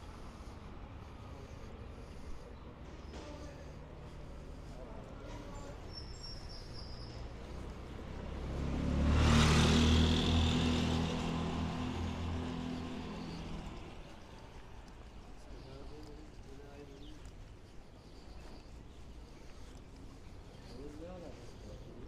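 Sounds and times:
vehicle driving past on cobbles: 7.4 - 14.2.

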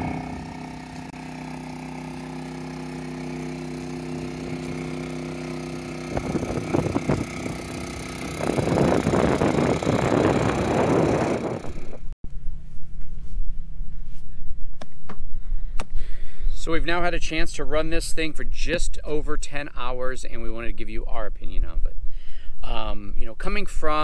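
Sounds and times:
generator engine running: 0.0 - 12.1.

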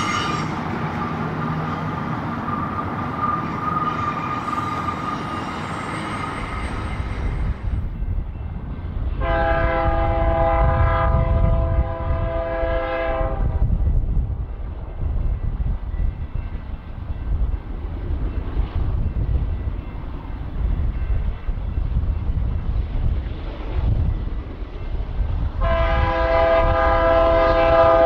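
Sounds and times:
high wheel squeal: 0.0 - 7.7
freight train rolling on rails: 0.0 - 28.0
locomotive air horn chord: 9.2 - 13.6, 25.6 - 28.0.

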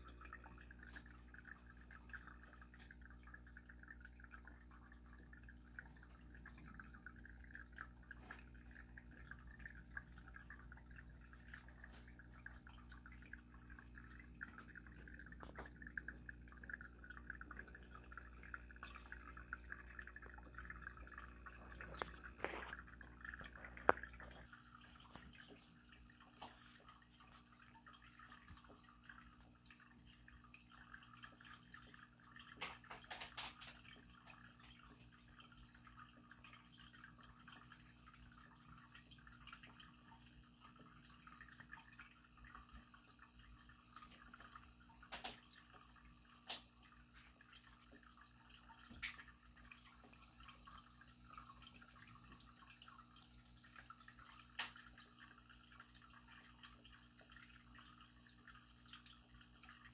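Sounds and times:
water trickling and dripping: 0.0 - 59.9.

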